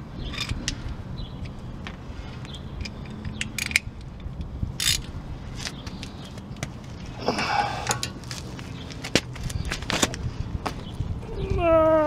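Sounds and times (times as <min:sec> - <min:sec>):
socket wrench clicking and scraping: 0:00.2 - 0:06.7.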